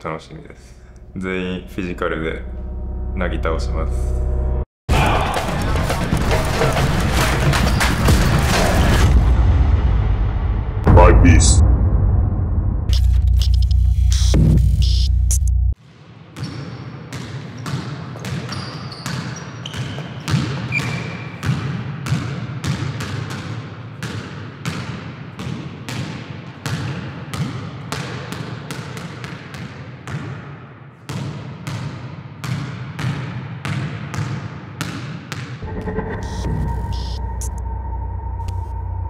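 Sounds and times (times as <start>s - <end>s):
steady low hum: 0.2s - 4.7s, 9.4s - 15.8s, 35.6s - 39.0s
sneakers squeaking on floor: 16.4s - 23.5s.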